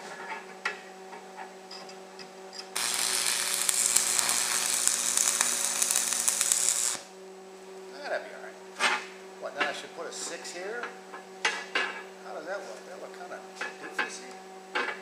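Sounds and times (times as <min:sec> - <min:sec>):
welding arc crackling and hissing: 0:02.6 - 0:07.1.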